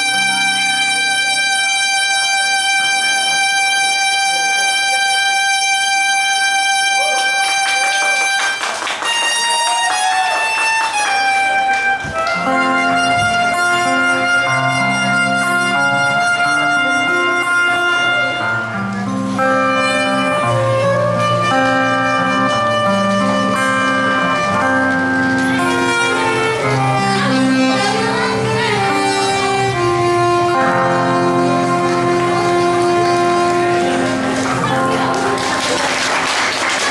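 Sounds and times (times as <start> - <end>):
acoustic guitar accompaniment: 0.0 - 36.9
soprano saxophone melody: 0.0 - 36.9.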